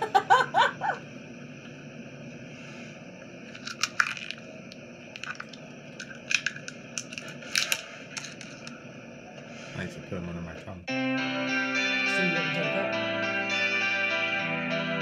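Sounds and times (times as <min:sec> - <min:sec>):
woman laughing: 0:00.0 - 0:01.0
steady hiss: 0:00.0 - 0:10.9
faint crackles and clicks: 0:03.2 - 0:09.5.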